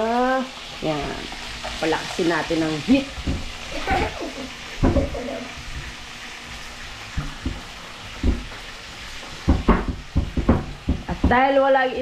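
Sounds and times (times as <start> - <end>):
fish sizzling in hot oil: 0.0 - 12.0
short dull knocks: 7.2 - 8.6, 9.4 - 11.4.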